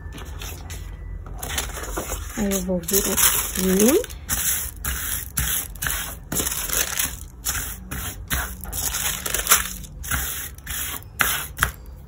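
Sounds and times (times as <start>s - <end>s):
wax paper rustling and crackling: 1.5s - 4.2s, 6.4s - 7.3s, 8.6s - 9.9s.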